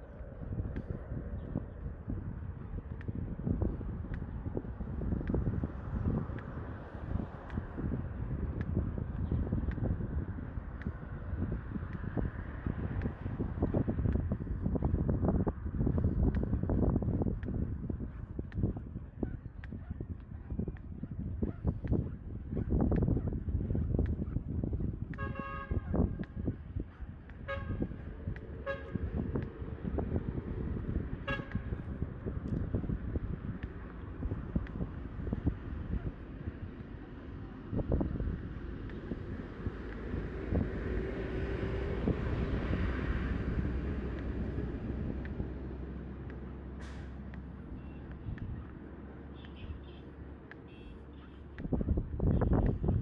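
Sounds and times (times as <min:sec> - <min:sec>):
low street rumble: 0:00.0 - 0:53.0
vehicle horn beeping: 0:25.2 - 0:25.8, 0:27.5 - 0:27.9, 0:28.6 - 0:29.0, 0:31.3 - 0:31.8, 0:49.4 - 0:50.1, 0:50.7 - 0:51.4.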